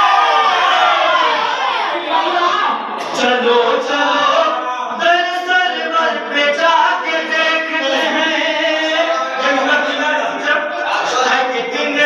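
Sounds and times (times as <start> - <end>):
man chanting into microphone: 3.0 - 12.0.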